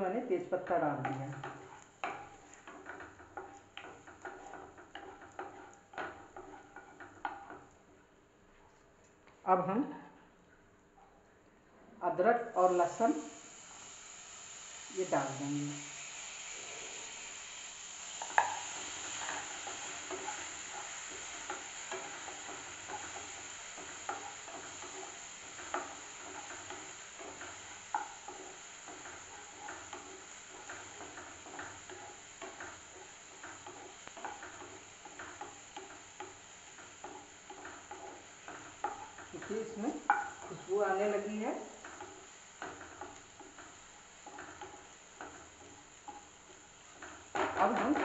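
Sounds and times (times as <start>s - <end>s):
paste sizzling in butter: 0.0s - 7.9s, 12.6s - 48.0s
spatula knocking and scraping pan: 1.0s - 7.8s, 18.2s - 48.0s.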